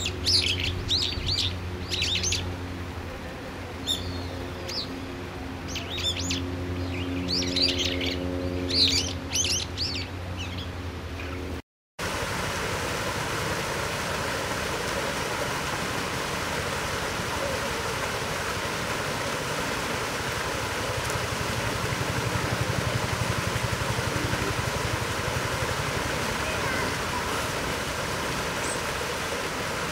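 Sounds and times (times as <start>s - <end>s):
steady rushing noise: 12.0s - 29.9s.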